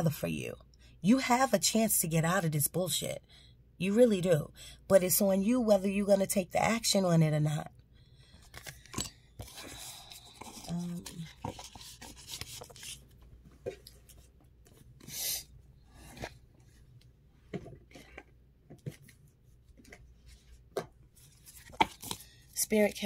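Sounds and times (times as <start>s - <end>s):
cards being shuffled: 9.4s - 15.2s, 17.6s - 22.5s.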